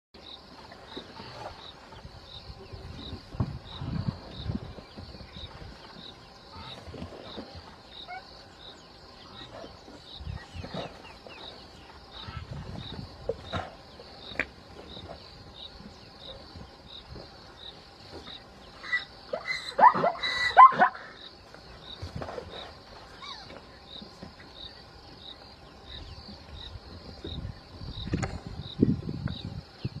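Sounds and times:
insects buzzing and chirping: 0:00.2 - 0:30.0
low thumps and rumbles: 0:02.3 - 0:06.1.

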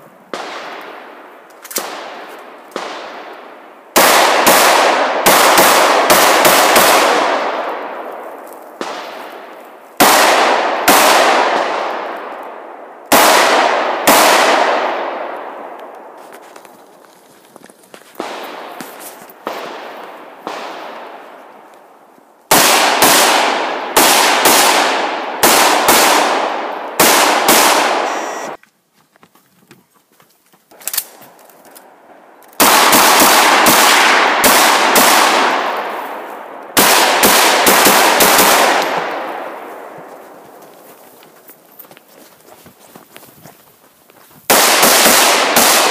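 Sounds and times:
rifle gunshots with echo: 0:00.3 - 0:16.2, 0:18.2 - 0:21.6, 0:22.5 - 0:28.6, 0:32.6 - 0:40.6, 0:44.5 - 0:45.9.

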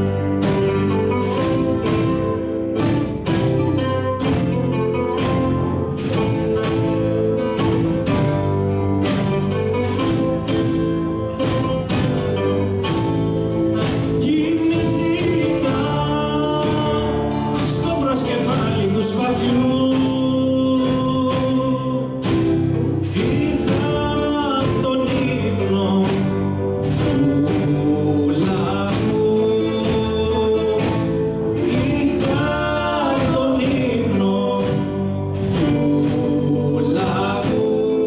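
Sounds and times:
drum kit beat: 0:00.0 - 0:38.0
live band playing: 0:00.0 - 0:38.0
person singing: 0:13.8 - 0:38.0.

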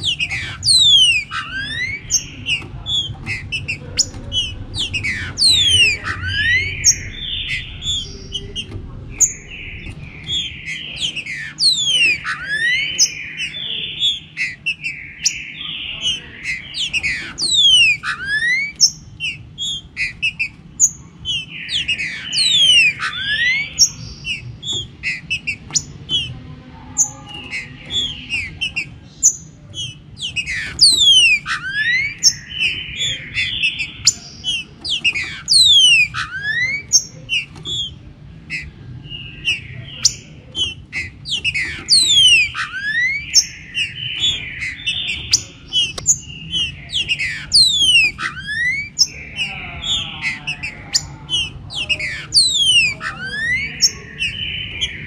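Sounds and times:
low background rumble: 0:00.0 - 0:13.5
birds singing whistled phrases: 0:00.0 - 0:55.0.

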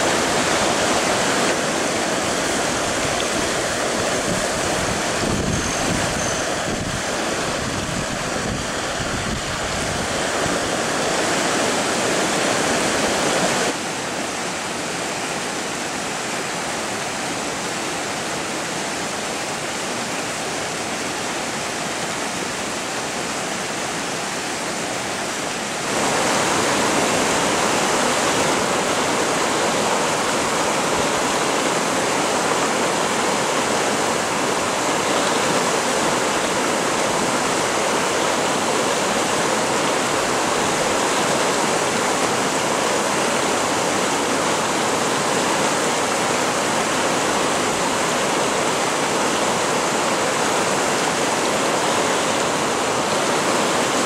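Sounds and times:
river water rushing over rocks: 0:00.0 - 0:54.0.

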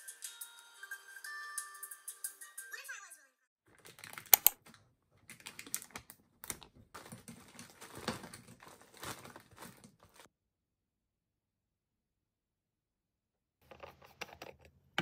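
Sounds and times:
plastic bag rustling: 0:05.4 - 0:10.3.

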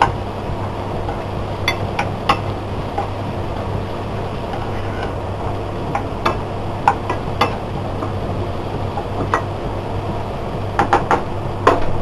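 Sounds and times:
food sizzling: 0:00.0 - 0:12.0
spatula tapping and scraping pan: 0:01.0 - 0:03.1, 0:05.9 - 0:08.2.

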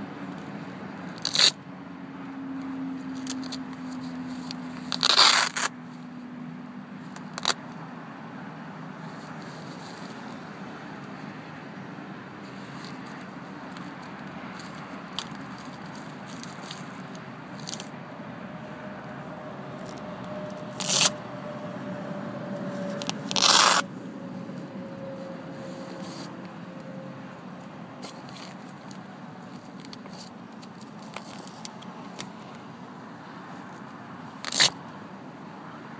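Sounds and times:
fabric fastener ripping: 0:01.2 - 0:01.6, 0:04.3 - 0:05.7, 0:20.8 - 0:21.1, 0:22.9 - 0:23.8, 0:34.4 - 0:34.8
fabric rubbing and scraping: 0:03.4 - 0:05.8, 0:09.1 - 0:10.6, 0:19.7 - 0:21.2, 0:22.6 - 0:23.9, 0:24.6 - 0:27.0, 0:34.4 - 0:34.8.

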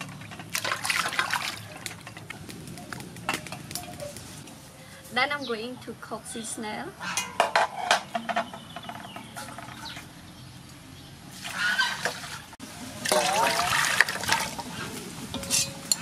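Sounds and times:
water poured into metal pot: 0:13.0 - 0:14.6.

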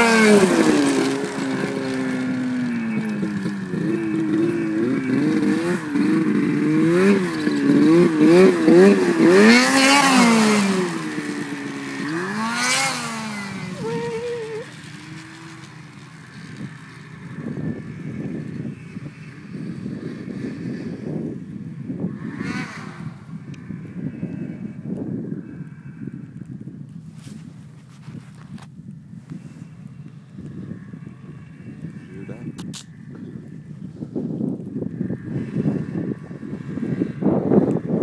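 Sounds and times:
snowmobile engine revving: 0:00.0 - 0:24.8.

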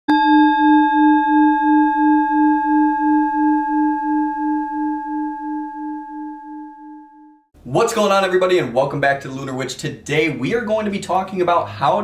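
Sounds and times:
singing bowl ringing: 0:00.1 - 0:07.5.

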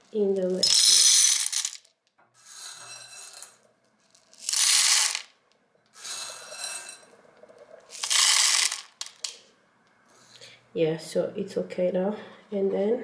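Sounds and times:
popcorn kernels rattling on metal: 0:00.6 - 0:01.9, 0:04.2 - 0:05.3, 0:07.9 - 0:09.4.

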